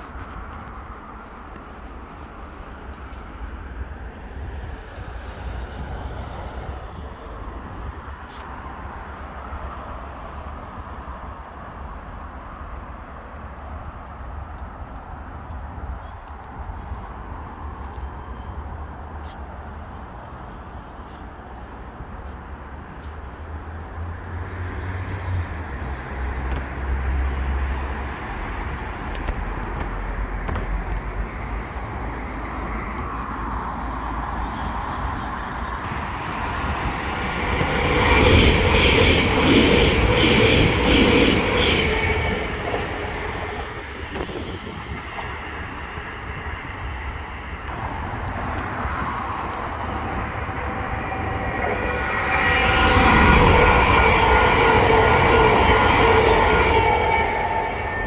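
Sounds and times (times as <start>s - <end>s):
low road traffic rumble: 0.0s - 58.0s
electric train running: 35.9s - 45.2s, 47.8s - 58.0s.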